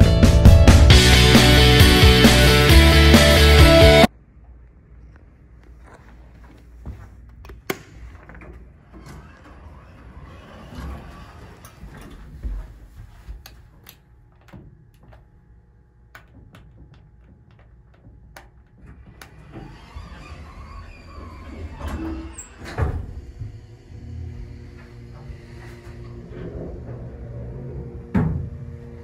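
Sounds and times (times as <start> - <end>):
elevator doors sliding: 8.0 - 15.2, 16.2 - 29.0.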